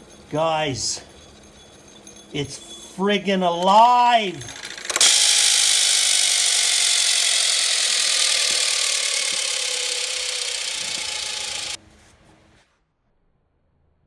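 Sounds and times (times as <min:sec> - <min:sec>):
electric motor running: 0:03.6 - 0:11.8.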